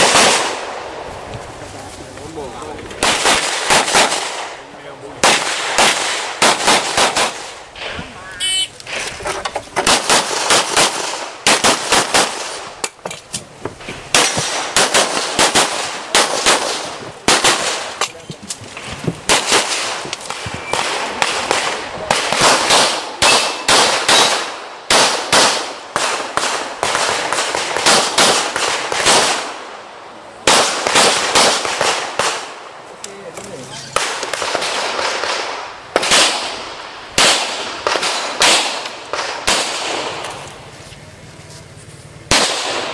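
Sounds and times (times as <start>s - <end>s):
pistol shots: 0.0s - 0.9s, 3.0s - 9.0s, 9.8s - 12.8s, 14.1s - 18.1s, 19.3s - 29.6s, 30.4s - 32.6s, 34.0s - 40.3s, 42.3s - 42.9s.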